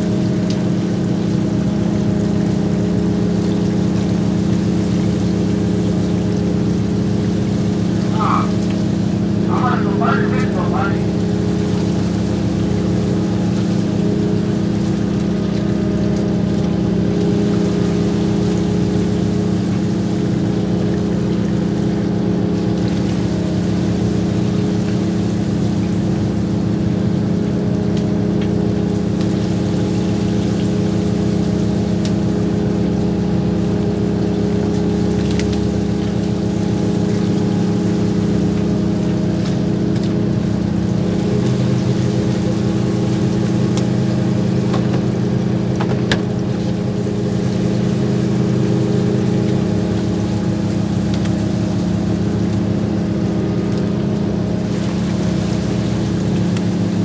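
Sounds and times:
boat engine humming: 0:00.0 - 0:57.0
deeper tone: 0:07.9 - 0:11.6.

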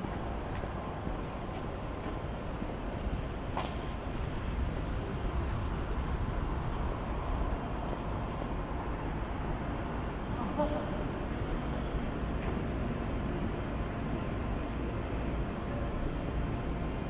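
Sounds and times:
distant city traffic rumble: 0:00.0 - 0:17.0.

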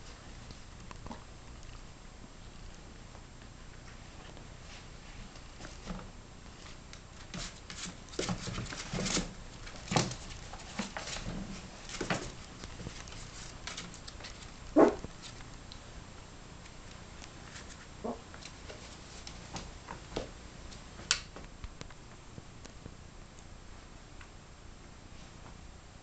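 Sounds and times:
puppy rustling on towel: 0:03.8 - 0:15.6.

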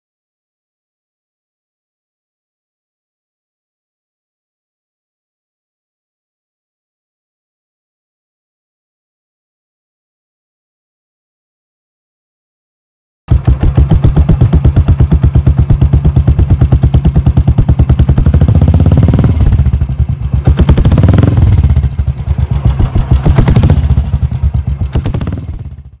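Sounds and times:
engine revving: 0:13.3 - 0:26.0
motorcycle engine idling: 0:13.3 - 0:26.0.

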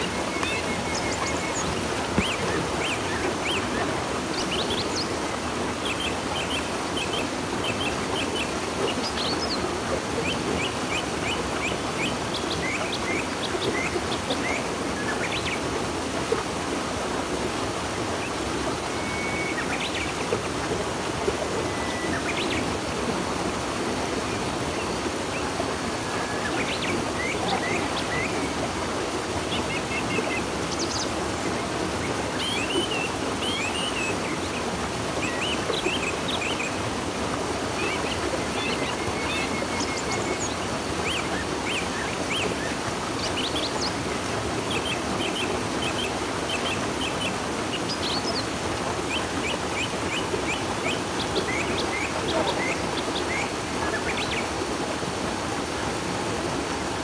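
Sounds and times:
birds chirping: 0:00.0 - 0:16.0, 0:17.4 - 0:36.8, 0:44.7 - 0:54.6
river water rushing: 0:00.0 - 0:57.0.

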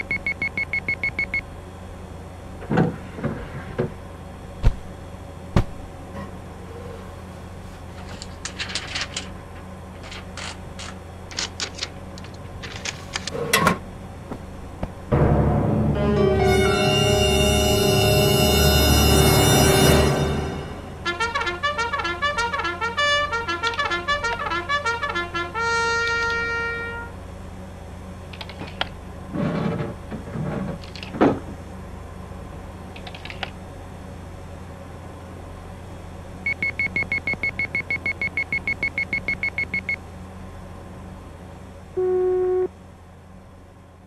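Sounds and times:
steady low hum: 0:00.0 - 0:44.0
soundtrack music: 0:15.1 - 0:21.3
short tone: 0:42.0 - 0:42.7.

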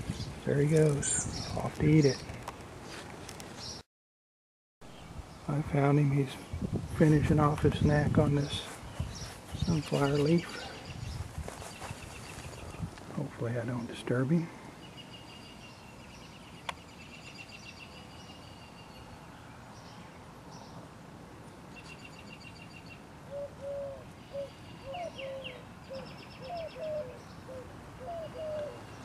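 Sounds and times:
birds trilling: 0:21.8 - 0:29.0
bird hooting notes: 0:23.3 - 0:28.9.

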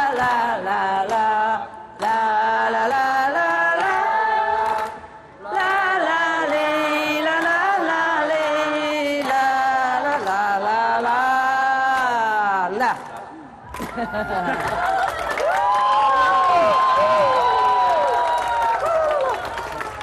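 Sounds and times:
woman singing into a microphone: 0:00.0 - 0:13.1.

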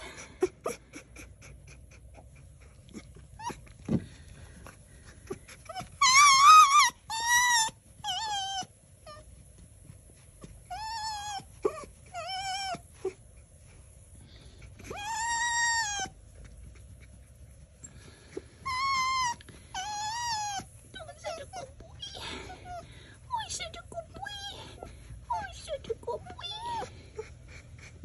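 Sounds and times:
fox squealing: 0:05.3 - 0:09.2, 0:10.7 - 0:13.2, 0:14.8 - 0:16.2, 0:18.6 - 0:25.7.

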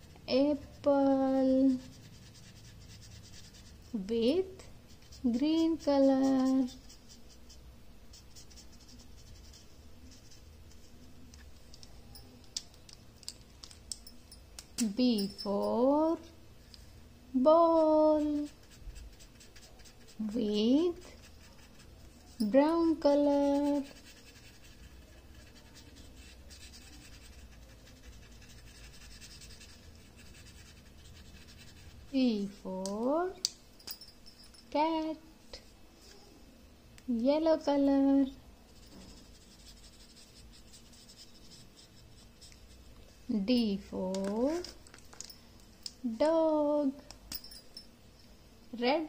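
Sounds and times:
felt-tip pen scratching on paper: 0:01.6 - 0:04.0, 0:04.9 - 0:11.0, 0:17.8 - 0:32.7, 0:38.7 - 0:43.0.

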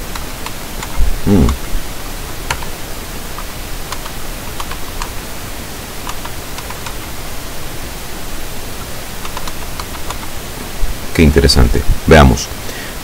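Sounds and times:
recording hiss: 0:00.0 - 0:13.0
computer key clicks: 0:09.2 - 0:10.3.

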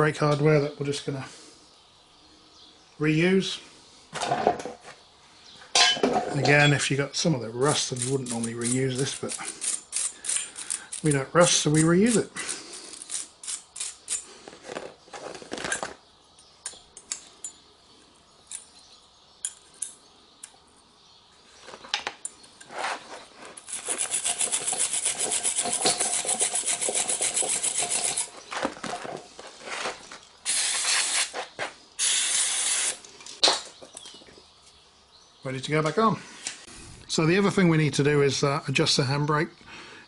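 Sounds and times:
rasping strokes against steel: 0:07.7 - 0:14.3, 0:22.6 - 0:28.4
aerosol spray can hissing: 0:30.5 - 0:31.4, 0:32.0 - 0:33.0.

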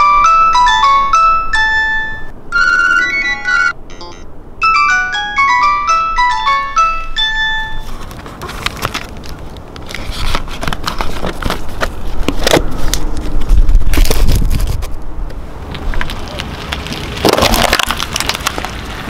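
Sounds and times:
electronic phone ringtone: 0:00.0 - 0:07.9
box handling clicks and crackles: 0:07.9 - 0:14.9.

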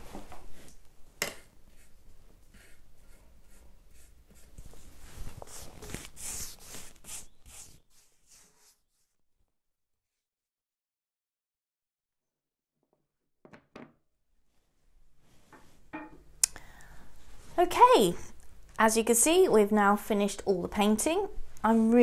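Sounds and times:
scratchy paintbrush strokes: 0:01.7 - 0:09.2.

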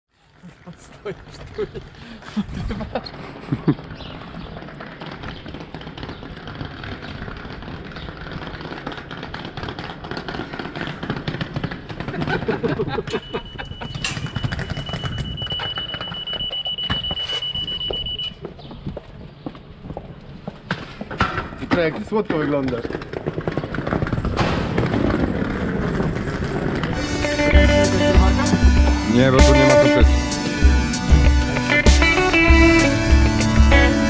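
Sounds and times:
rumbling clattering noise: 0:20.7 - 0:29.1
high-pitched electronic alarm tone: 0:27.0 - 0:34.0.

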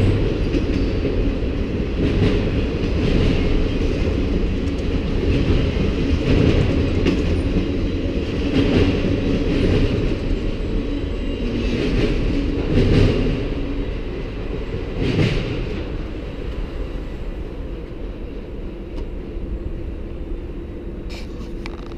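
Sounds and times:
train wheel clacks: 0:00.0 - 0:10.3
freight train rumbling past: 0:00.0 - 0:21.9.

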